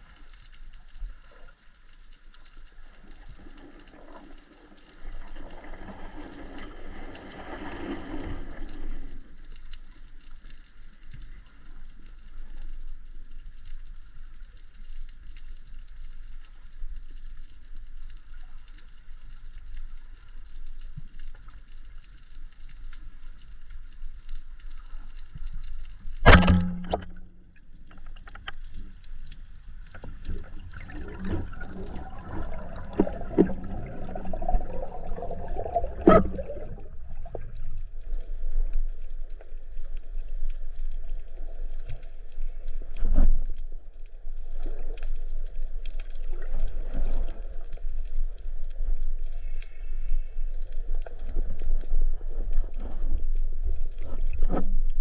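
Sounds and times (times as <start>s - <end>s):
faint underwater hiss: 0.0s - 55.0s
speargun firing underwater: 26.2s - 27.3s
sharp knocks: 26.3s - 27.1s.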